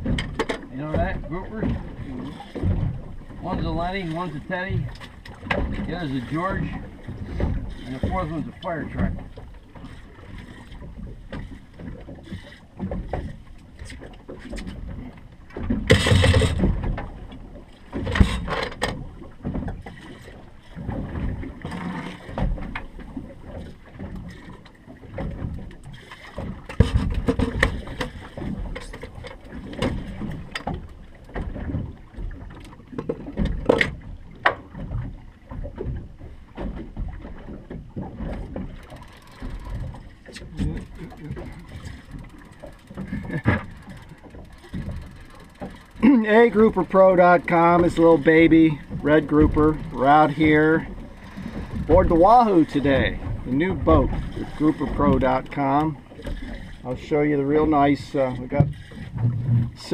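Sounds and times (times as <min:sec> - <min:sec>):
knocks on boat: 0:00.0 - 0:01.9, 0:02.6 - 0:03.6, 0:04.8 - 0:05.9, 0:14.3 - 0:17.2, 0:17.9 - 0:20.0, 0:25.1 - 0:38.8, 0:58.4 - 0:59.9
water lapping against boat hull: 0:00.0 - 0:59.9
wind buffeting microphone: 0:33.2 - 0:57.2, 0:58.0 - 0:59.9.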